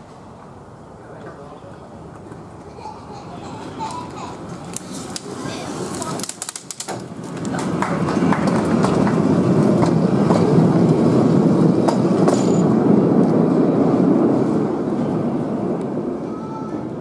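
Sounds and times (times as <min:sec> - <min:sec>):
miniature train wheels rumbling: 0:03.8 - 0:13.6.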